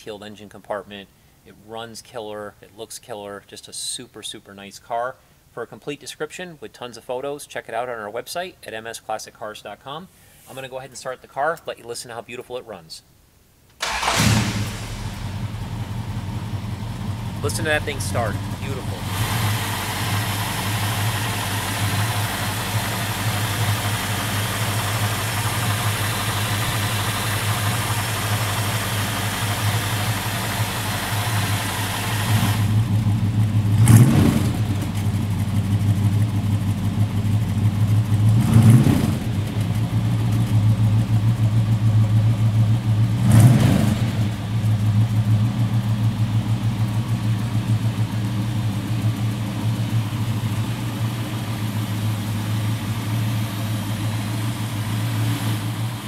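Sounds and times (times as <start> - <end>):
car engine idling and revving: 13.8 - 56.0.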